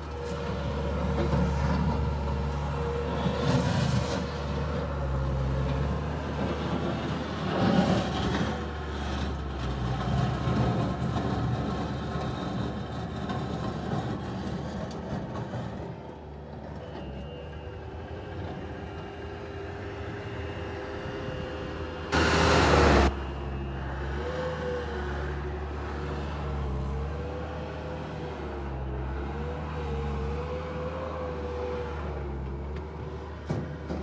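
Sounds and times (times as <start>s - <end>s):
diesel engine running: 0.0s - 34.0s
loud rush of noise: 22.0s - 23.2s.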